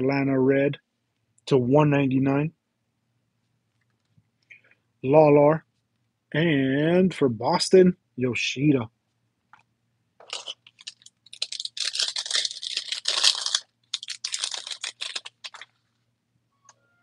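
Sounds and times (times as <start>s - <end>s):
foil wrapper crinkling and tearing: 10.2s - 15.8s.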